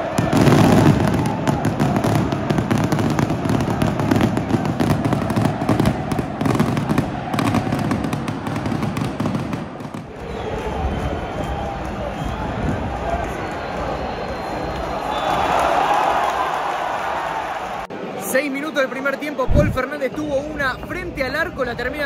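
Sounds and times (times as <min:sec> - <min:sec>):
fireworks crackling and banging: 0:00.0 - 0:11.7
stadium crowd din: 0:00.0 - 0:22.0.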